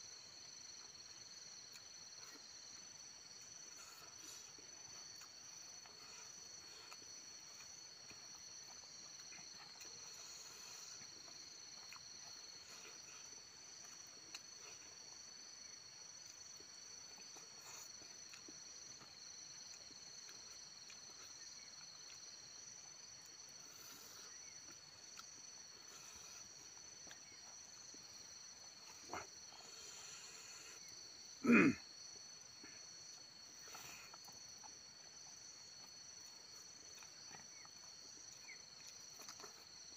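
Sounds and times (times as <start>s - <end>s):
insects chirring: 0.0s - 39.9s.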